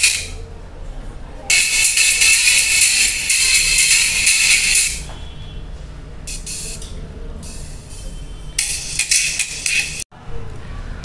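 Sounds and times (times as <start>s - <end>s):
thin hissy treble music: 1.5s - 5.0s.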